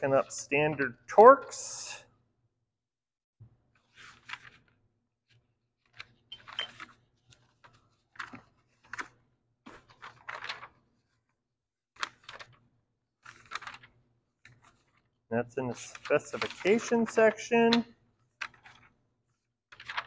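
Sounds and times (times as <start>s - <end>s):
paper pages rustling: 3.8s - 11.4s, 12.0s - 20.0s.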